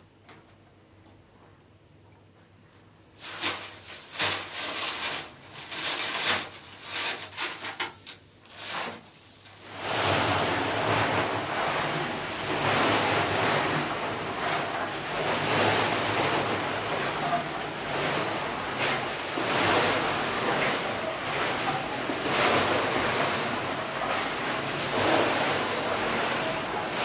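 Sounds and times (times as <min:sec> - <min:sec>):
water sloshing and splashing: 0:09.6 - 0:27.0.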